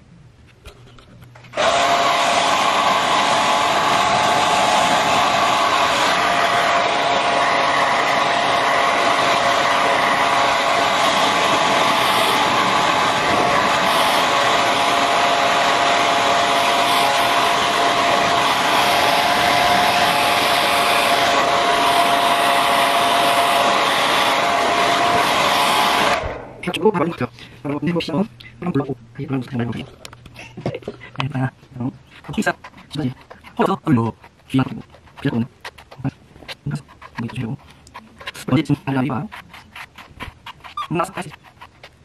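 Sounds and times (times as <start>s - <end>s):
hair dryer whining: 1.5s - 26.6s.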